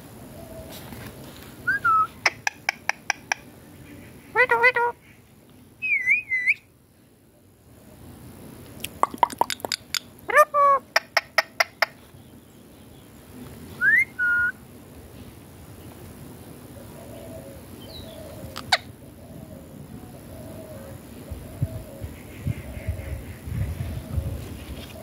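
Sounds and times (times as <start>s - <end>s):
parakeet whistling: 1.7s - 3.3s, 5.8s - 6.6s, 13.8s - 14.6s
parakeet clicking: 2.3s - 3.5s, 8.8s - 10.1s.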